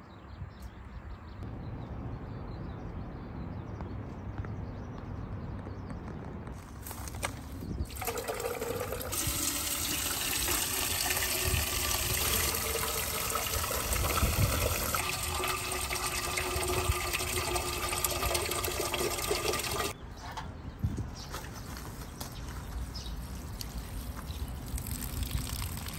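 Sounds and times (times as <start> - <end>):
water filling metal watering can: 7.9 - 20.0, 24.7 - 25.9.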